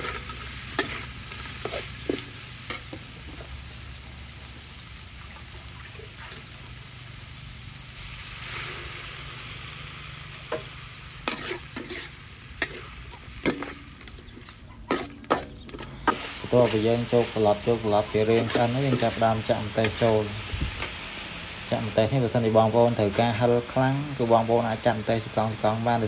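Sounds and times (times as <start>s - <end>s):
metal spatula scraping a wok: 0.0s - 3.0s, 10.5s - 22.0s
liver sizzling in a wok: 0.0s - 26.0s.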